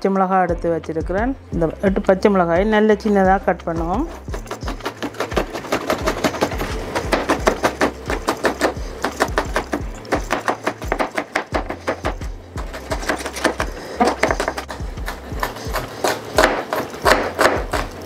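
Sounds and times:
knife chopping on wooden board: 0:04.0 - 0:18.0.

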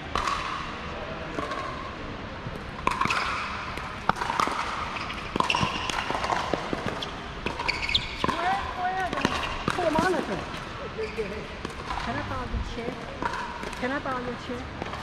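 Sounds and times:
ball bouncing on court: 0:00.0 - 0:15.0
paddles hitting plastic ball: 0:02.8 - 0:10.7.

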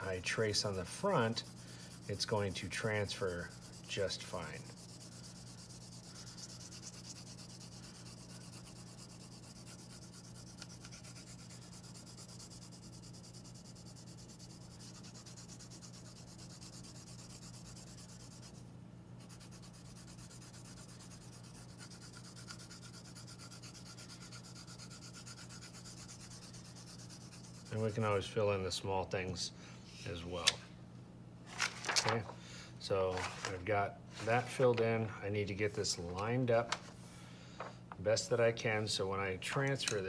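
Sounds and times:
pencil scratching on paper: 0:00.0 - 0:18.6, 0:19.2 - 0:28.3.

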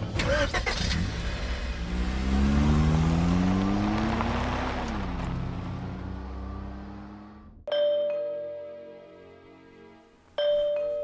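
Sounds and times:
car engine accelerating: 0:00.0 - 0:07.6.

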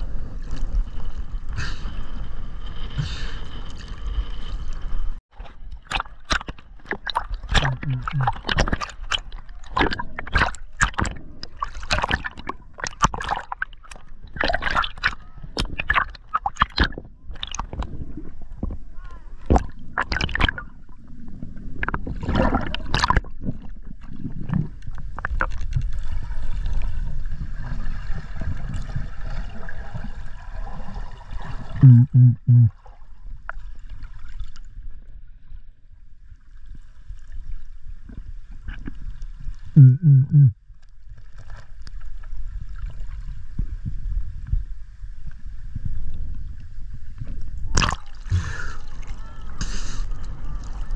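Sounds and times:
water splashing against camera: 0:02.7 - 0:20.9, 0:21.8 - 0:27.0, 0:47.2 - 0:50.9
muffled underwater hiss: 0:48.3 - 0:50.3.

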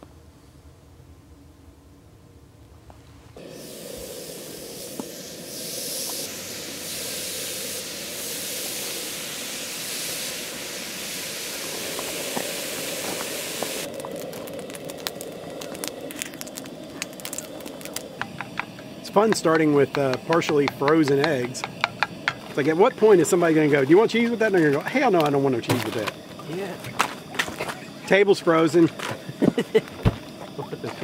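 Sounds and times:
bacon sizzling on grill: 0:03.4 - 0:31.0
fat popping and crackling: 0:10.4 - 0:27.9.

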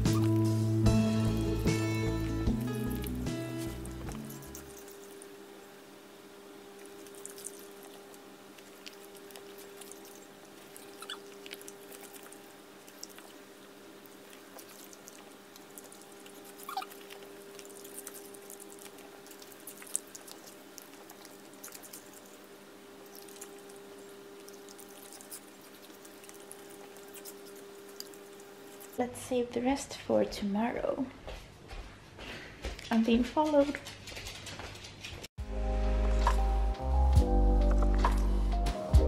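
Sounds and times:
dogs licking and chewing: 0:00.0 - 0:05.4, 0:06.8 - 0:30.2, 0:32.6 - 0:35.3.

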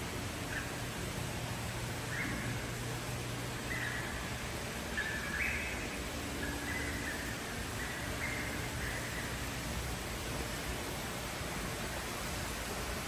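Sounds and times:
aquarium pumps humming: 0:00.0 - 0:13.0
short chirping calls: 0:03.6 - 0:09.5.

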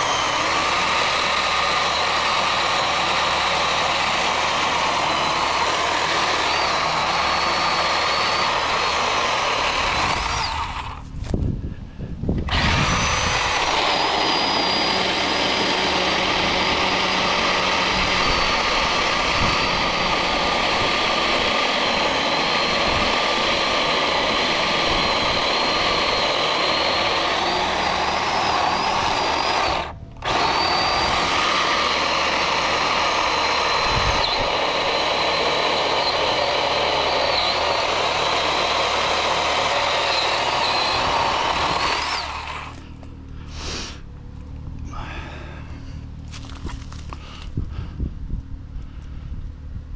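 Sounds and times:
chain rasping through wood: 0:00.0 - 0:11.1, 0:12.5 - 0:43.1
electric chainsaw motor whine: 0:00.0 - 0:11.4, 0:12.3 - 0:44.0.

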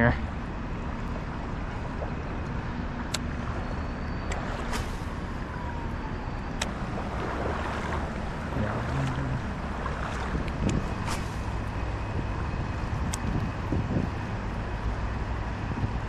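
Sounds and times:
flowing river water: 0:00.0 - 0:16.0
fishing reel spool whine: 0:02.7 - 0:14.6
wind on microphone: 0:03.3 - 0:16.0.

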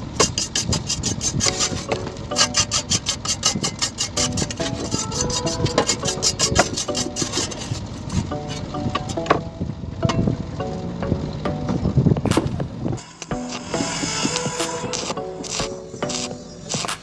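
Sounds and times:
wire brush scrubbing steel: 0:00.2 - 0:08.3.

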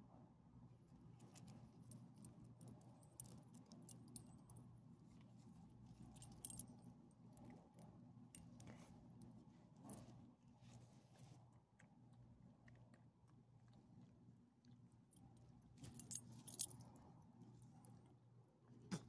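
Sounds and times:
faint low hum: 0:00.0 - 0:19.0
metal dog tags jangling: 0:06.1 - 0:06.9, 0:15.8 - 0:16.9.

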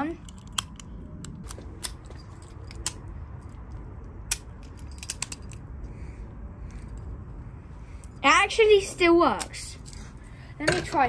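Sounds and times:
padlock metallic clicks: 0:00.2 - 0:03.1, 0:04.3 - 0:05.7.

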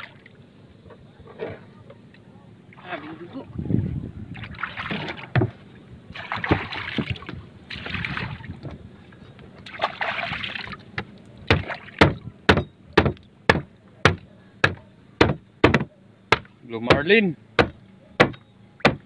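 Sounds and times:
water splashing: 0:00.0 - 0:00.4, 0:02.7 - 0:03.5, 0:04.3 - 0:08.7, 0:09.6 - 0:12.2
blade chopping on wooden board: 0:11.5 - 0:19.0.

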